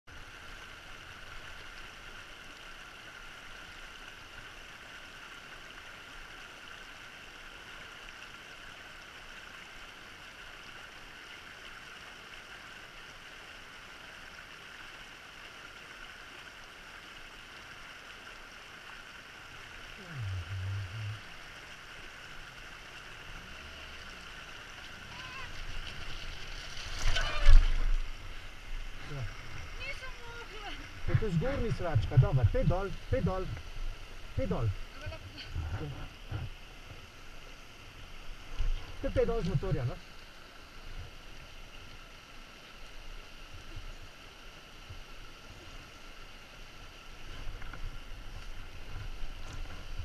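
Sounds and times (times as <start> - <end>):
stream running over stones: 0.1 - 50.0
low engine rumble: 20.0 - 21.7.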